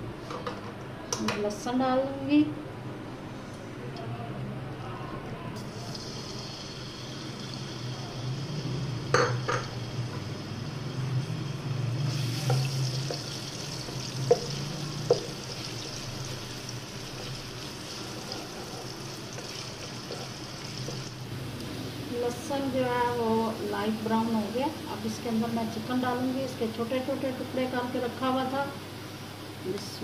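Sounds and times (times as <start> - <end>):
garlic sizzling in oil: 5.8 - 22.7.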